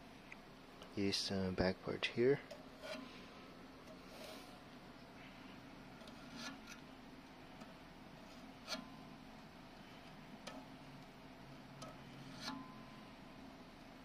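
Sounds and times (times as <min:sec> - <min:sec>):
knife scraping plastic: 0:06.0 - 0:06.8.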